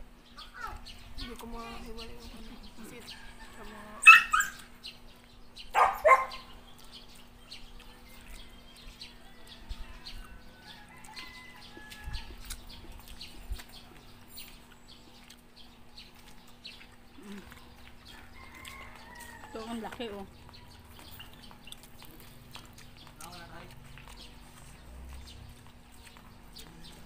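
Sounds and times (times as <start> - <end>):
eating and food handling clicks: 11.0 - 27.0.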